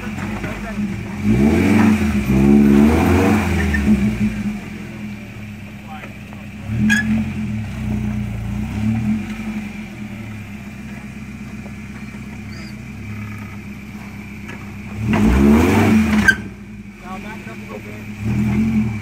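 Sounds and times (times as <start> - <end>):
engine running at low revs: 0.0 - 19.0
engine throttle blips: 0.0 - 19.0.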